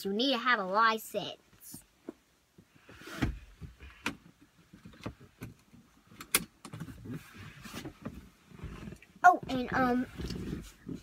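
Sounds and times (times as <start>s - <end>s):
seatbelt webbing rustling: 2.8s - 9.2s
seatbelt clicks and knocks: 3.2s - 7.2s.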